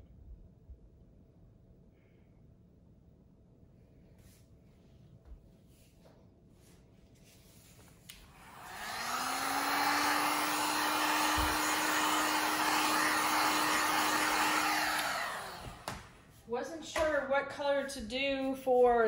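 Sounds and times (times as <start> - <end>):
heat gun blowing: 8.1 - 16.4.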